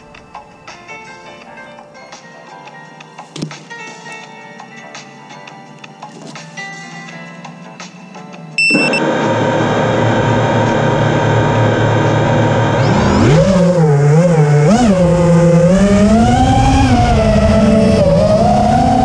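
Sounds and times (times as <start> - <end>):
drone propellers humming: 8.6 - 19.0.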